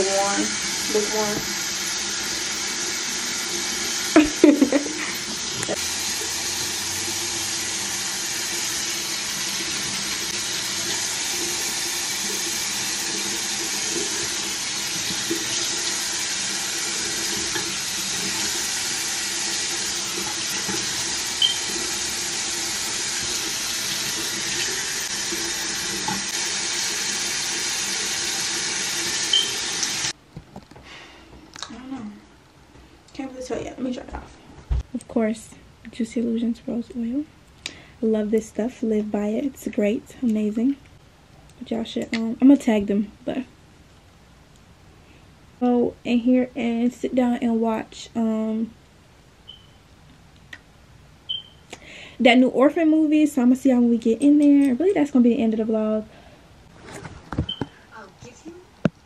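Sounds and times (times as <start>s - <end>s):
faucet running into sink: 0.0s - 30.1s.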